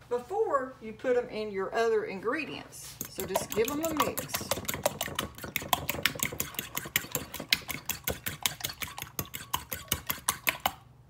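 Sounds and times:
fork beating eggs in bowl: 2.8 - 10.8.

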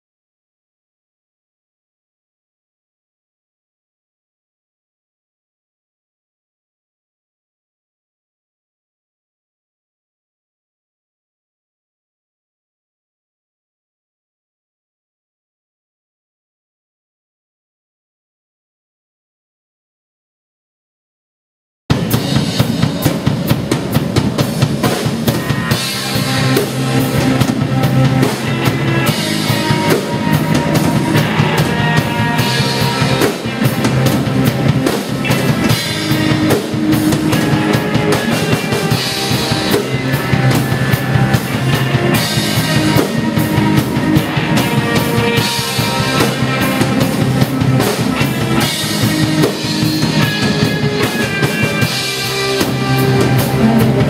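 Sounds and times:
drum kit beat: 21.9 - 54.0
electric guitar: 21.9 - 54.0.

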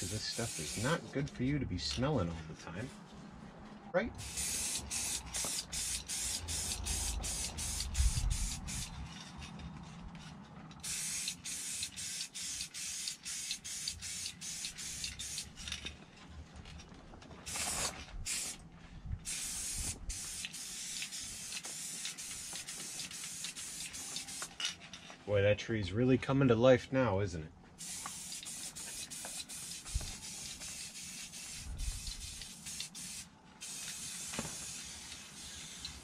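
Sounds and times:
spray paint can hissing: 0.0 - 1.1, 4.2 - 9.3, 10.8 - 15.8, 17.5 - 18.6, 19.2 - 24.6, 27.8 - 36.0.

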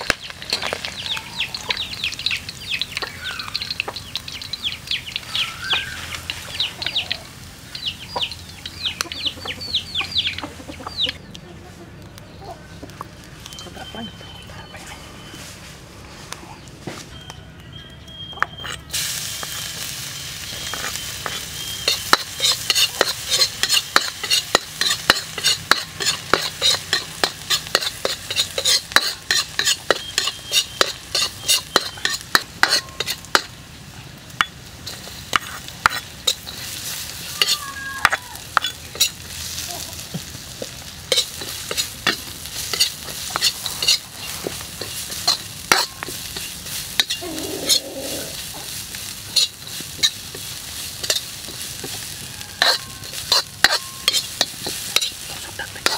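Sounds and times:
food sizzling in hot oil: 0.0 - 10.5, 18.8 - 55.9
metal ladle scraping a wok: 20.6 - 33.6, 34.4 - 37.6, 38.5 - 39.3, 41.1 - 55.9.

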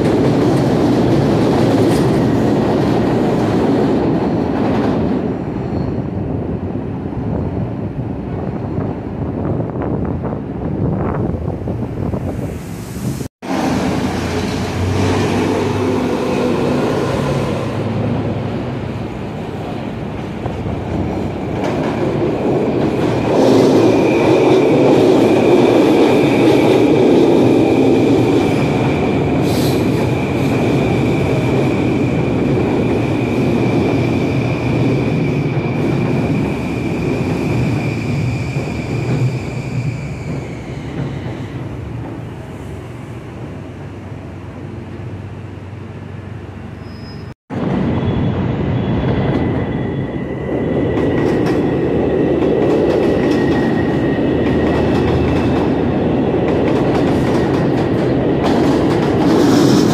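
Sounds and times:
train wheel rumble: 47.5 - 59.9.

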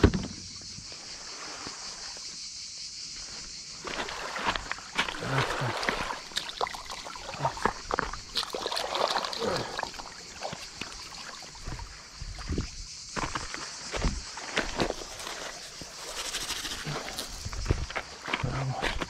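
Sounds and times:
water splashing on pebble shore: 3.8 - 12.5, 14.3 - 18.3.

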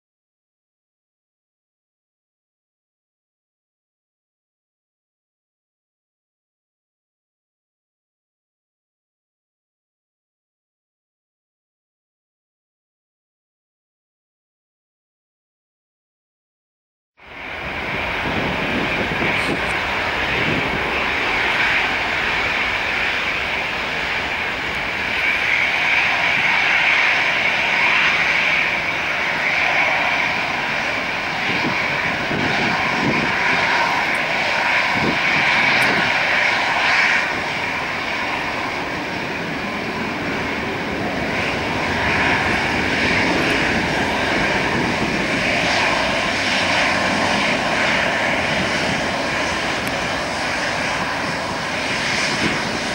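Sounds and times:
jet engines whining at taxi power: 17.2 - 52.9.

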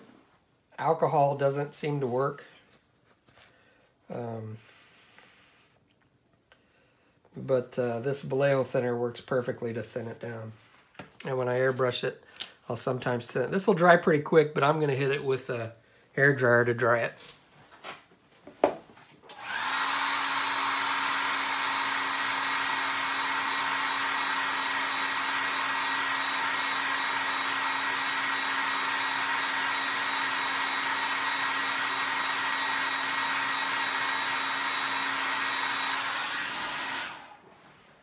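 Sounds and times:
hair dryer blowing: 19.3 - 38.0.

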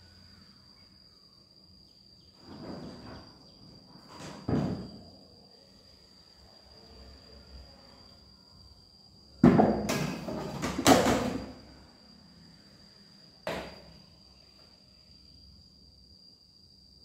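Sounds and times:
household items knocking: 9.4 - 11.4.

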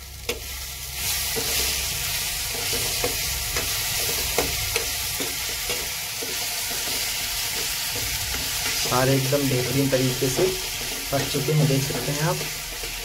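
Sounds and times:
masala sizzling in oil: 0.0 - 13.0
spatula tapping and scraping pan: 2.5 - 8.9.

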